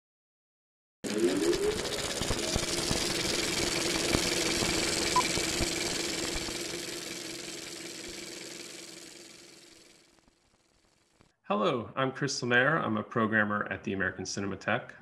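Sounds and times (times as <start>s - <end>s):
steady hum: 1.1s - 11.2s.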